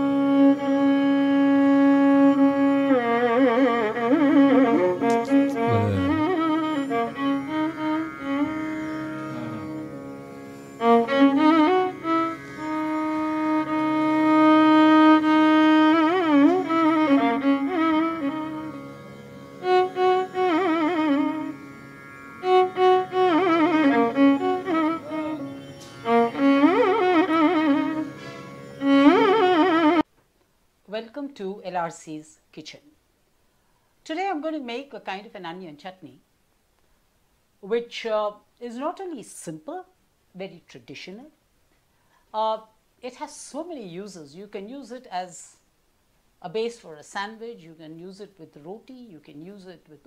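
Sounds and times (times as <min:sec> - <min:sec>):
sliding wavering melody: 0:00.2 - 0:30.0
low drone: 0:08.4 - 0:10.1.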